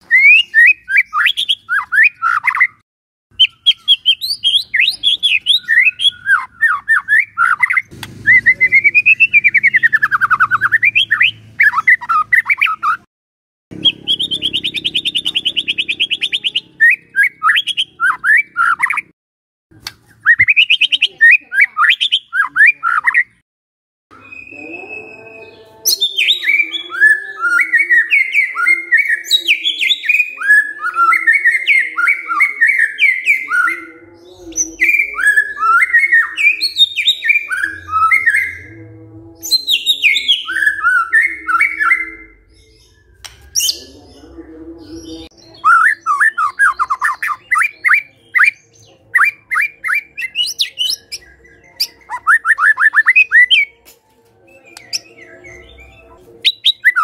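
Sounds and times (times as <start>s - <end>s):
songbird whistling loudly: 0.0s - 2.8s, 3.4s - 13.0s, 45.6s - 48.6s, 56.4s - 57.0s
fast buzzy bird trill: 3.4s - 13.1s, 13.7s - 19.1s.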